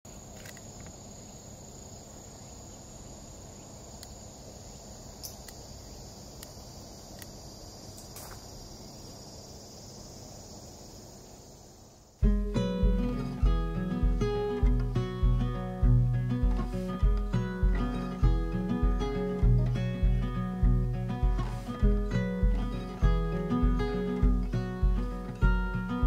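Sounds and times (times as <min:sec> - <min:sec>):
high-pitched insect drone: 0:00.1 - 0:26.0
faint ticks: 0:06.4 - 0:07.4
acoustic guitar music: 0:12.2 - 0:26.0
low background rumble: 0:12.2 - 0:26.0.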